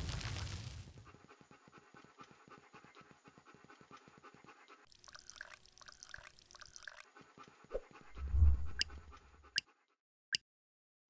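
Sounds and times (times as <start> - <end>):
dog panting: 1.0 - 4.9, 7.0 - 9.9
dog peeing trickle: 4.9 - 7.1.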